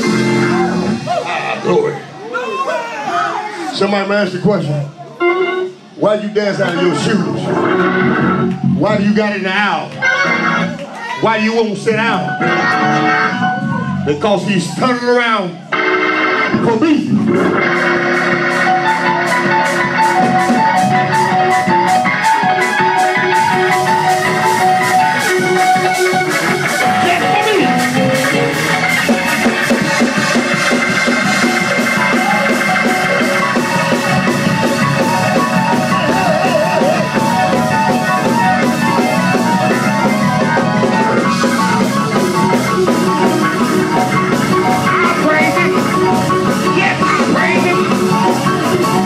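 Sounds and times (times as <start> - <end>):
drum kit beat: 0.0 - 2.2, 15.7 - 49.0
organ riff: 0.0 - 2.2, 3.8 - 49.0
bass: 0.0 - 2.3, 6.1 - 49.0.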